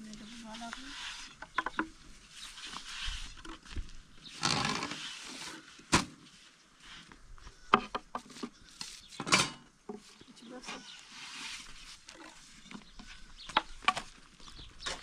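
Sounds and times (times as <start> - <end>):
rustle of dough or cloth: 2.1 - 3.9, 10.8 - 12.6.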